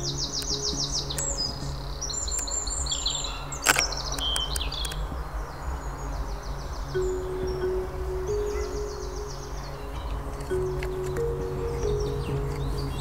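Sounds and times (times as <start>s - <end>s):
small songbirds singing: 0.0s - 13.0s
sharp click: 3.6s - 5.0s.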